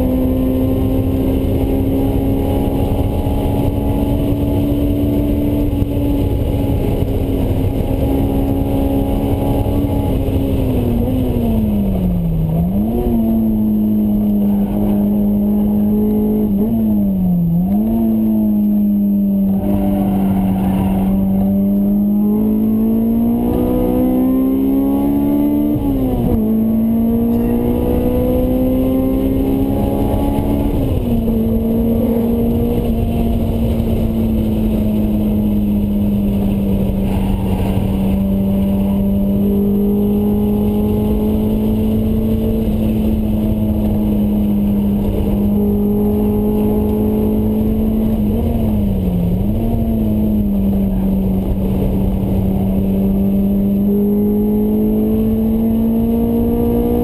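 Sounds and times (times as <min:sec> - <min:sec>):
car engine revving: 0:00.0 - 0:57.0
road and wind rumble: 0:00.0 - 0:57.0.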